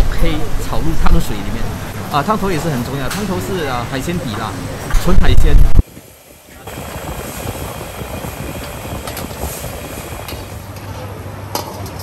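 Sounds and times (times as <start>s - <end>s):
gas burner rushing: 1.6s - 11.2s.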